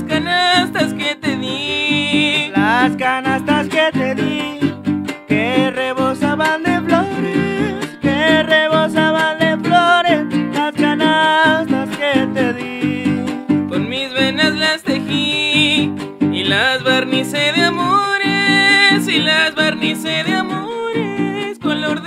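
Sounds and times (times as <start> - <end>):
strummed guitars: 0.0 - 22.0
violin melody: 0.0 - 22.0.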